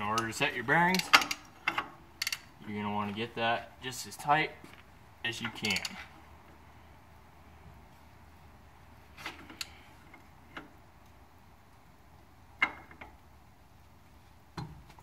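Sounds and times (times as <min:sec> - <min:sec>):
ratchet clicking: 0:00.9 - 0:02.5.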